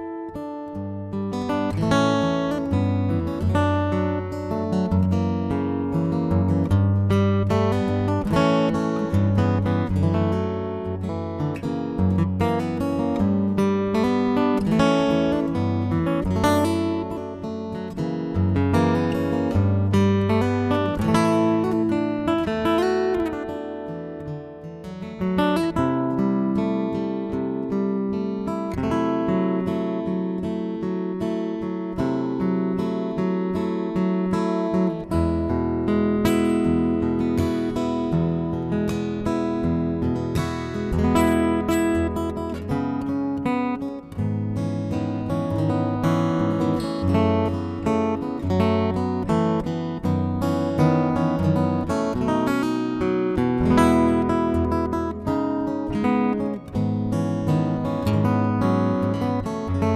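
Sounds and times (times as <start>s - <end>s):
fingerstyle acoustic guitar: 0.0s - 59.9s.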